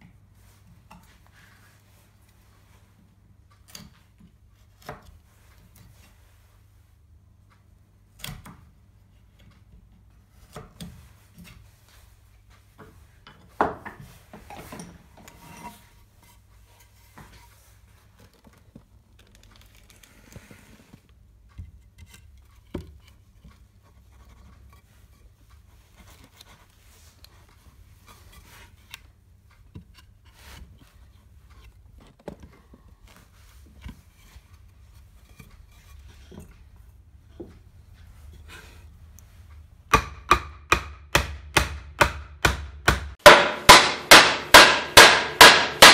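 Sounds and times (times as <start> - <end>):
chisel scraping wood: 14.3 - 17.6
knocks of wood on wood: 39.9 - 45.9.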